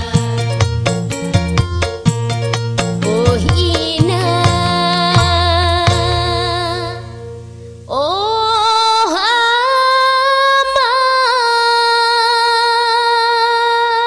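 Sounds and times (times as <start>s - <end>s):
high held melodic note: 2.4s - 9.0s.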